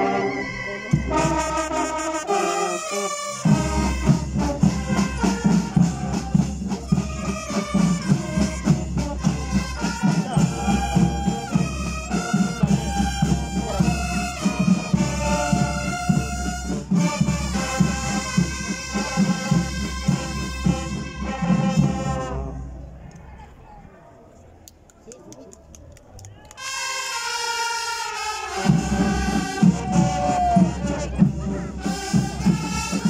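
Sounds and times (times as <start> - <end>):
brass melody: 0.0 - 22.8, 26.6 - 33.0
snare and bass drums: 3.4 - 22.2.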